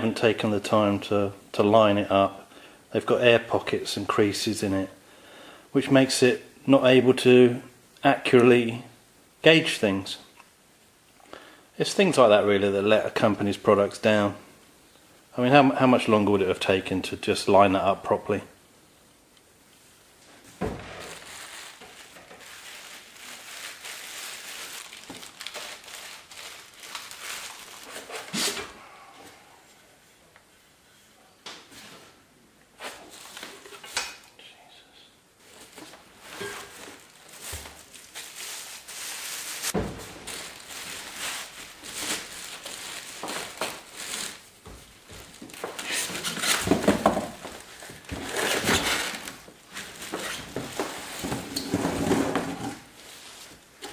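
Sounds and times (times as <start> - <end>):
plastic wrapping crinkling: 20.7 - 28.6, 35.4 - 51.7, 52.8 - 53.9.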